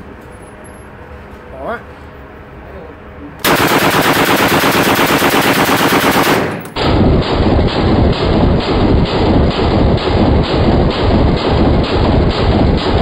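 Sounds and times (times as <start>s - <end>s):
submachine gun firing bursts: 3.4s - 13.0s.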